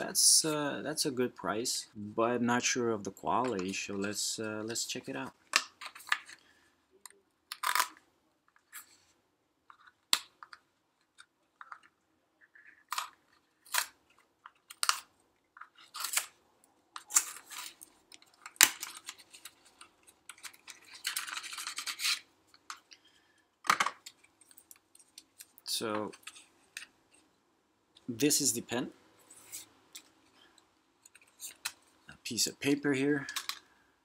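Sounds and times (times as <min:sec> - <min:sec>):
cardboard packaging rustling: 0:17.0 - 0:22.3.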